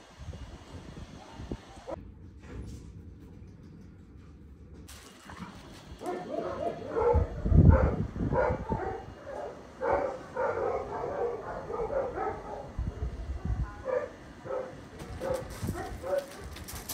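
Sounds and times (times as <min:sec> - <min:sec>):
dog barking: 0:06.0 - 0:13.2, 0:13.8 - 0:16.7.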